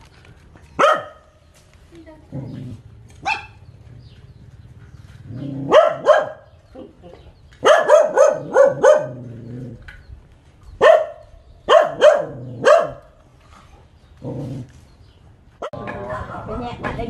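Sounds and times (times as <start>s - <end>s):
dog barking: 0.8s - 1.3s, 3.2s - 3.6s, 5.5s - 6.6s, 7.6s - 9.3s, 10.8s - 13.1s.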